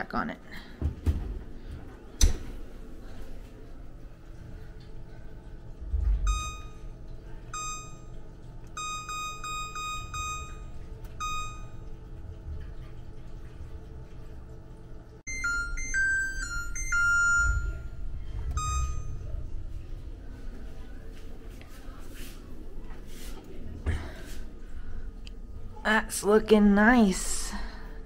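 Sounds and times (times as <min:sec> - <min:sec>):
oven timer chime: 0:06.1 - 0:12.4, 0:15.3 - 0:19.6
control panel key beeps: 0:06.3 - 0:06.8, 0:07.5 - 0:11.8, 0:15.3 - 0:17.8, 0:18.5 - 0:19.2.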